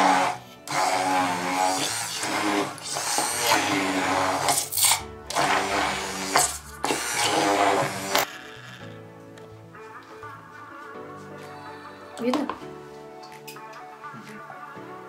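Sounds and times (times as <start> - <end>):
immersion blender whirring: 0.0 - 8.3
background music: 0.0 - 15.0.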